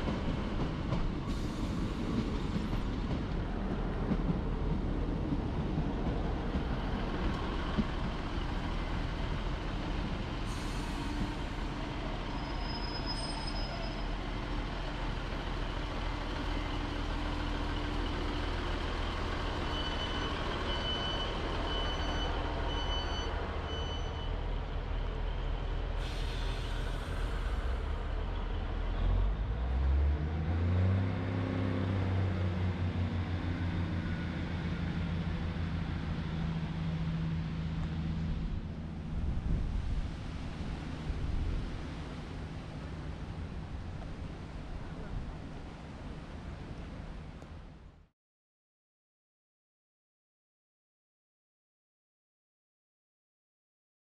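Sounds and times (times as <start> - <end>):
train engine idling: 0.0 - 29.4
short air hisses: 10.4 - 11.3, 26.0 - 27.8.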